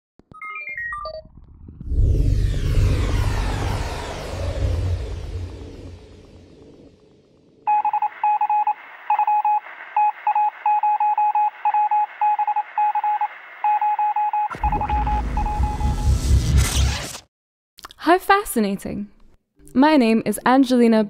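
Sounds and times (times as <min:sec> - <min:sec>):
deep rumbling whoosh: 0:01.2 - 0:07.6
electronic morse beeping: 0:07.7 - 0:16.4.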